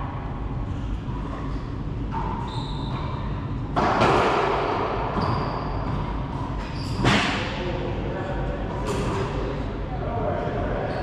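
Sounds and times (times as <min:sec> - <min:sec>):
racquetball hit with echoing crack: 0:01.2 - 0:07.8
sneakers squeaking on hardwood: 0:02.1 - 0:03.4, 0:05.0 - 0:07.2.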